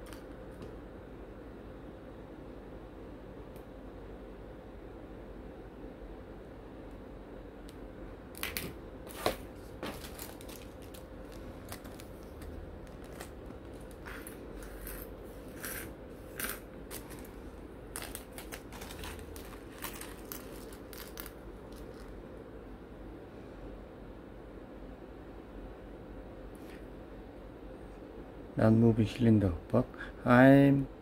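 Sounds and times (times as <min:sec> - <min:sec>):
steady background hum: 0:00.0 - 0:31.0
plastic bag crinkling: 0:09.2 - 0:14.4, 0:16.4 - 0:22.2.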